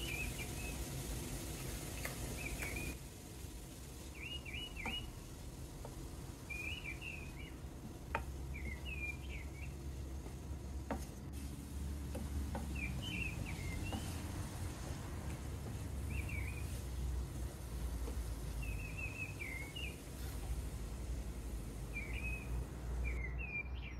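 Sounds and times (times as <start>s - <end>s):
wooden spoon stirring in frying pan: 0.0s - 23.2s
small bird chirping: 1.9s - 3.0s, 4.0s - 5.2s, 6.4s - 11.0s, 12.5s - 14.2s, 16.0s - 17.1s, 18.4s - 20.1s, 21.9s - 23.9s
spoon tapping on pan: 8.1s - 8.8s.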